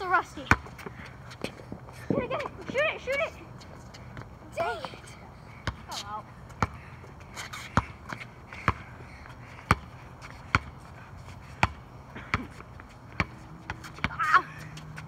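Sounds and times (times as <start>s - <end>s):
basketball bouncing: 0.4s - 1.0s, 6.6s - 6.8s, 7.7s - 8.9s, 9.6s - 9.9s, 10.5s - 10.7s, 11.6s - 14.4s.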